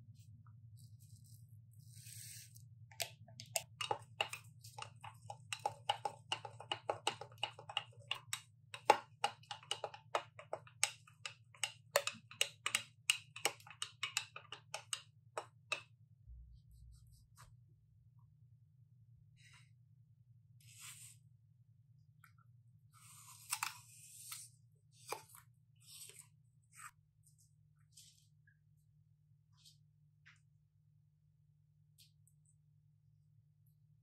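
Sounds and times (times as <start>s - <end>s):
stirrer clinking in glass mug: 3.0s - 15.0s.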